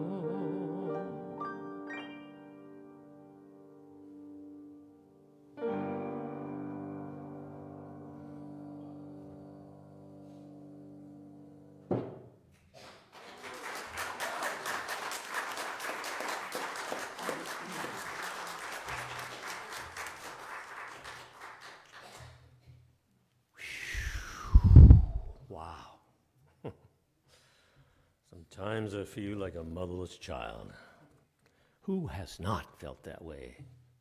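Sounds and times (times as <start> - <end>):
held keyboard chord: 0.0 - 11.9
single thump: 11.9 - 12.3
congregation applauding: 12.8 - 22.4.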